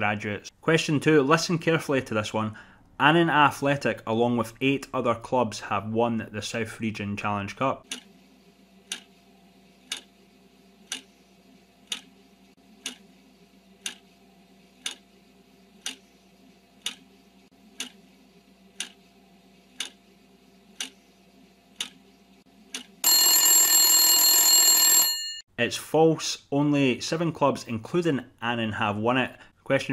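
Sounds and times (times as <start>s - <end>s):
clock ticking: 8.9s - 9.1s, 9.9s - 10.1s, 10.9s - 11.1s, 11.9s - 12.1s, 12.8s - 13.0s, 13.8s - 14.0s, 14.8s - 15.0s, 16.8s - 17.0s, 17.8s - 18.0s, 18.8s - 19.0s, 19.8s - 20.0s, 20.8s - 21.0s, 21.8s - 22.0s
loud alarm bell ringing: 23.0s - 25.4s.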